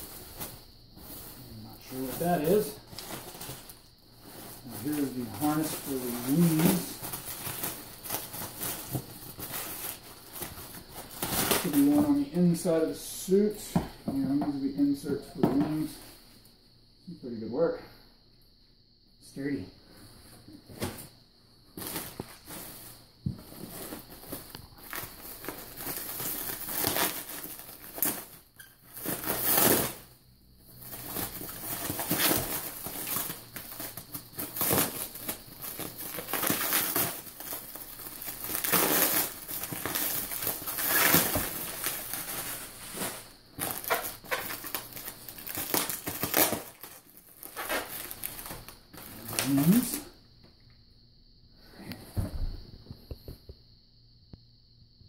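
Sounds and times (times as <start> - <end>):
packaging crinkling: 23.5 - 30.0, 30.8 - 50.0.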